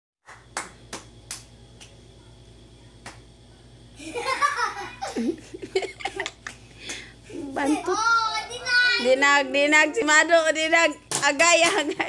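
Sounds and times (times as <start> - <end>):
children's hand claps: 0.2 - 1.9, 3.0 - 3.2
child giggling: 4.0 - 6.5
child speaking: 7.3 - 9.5.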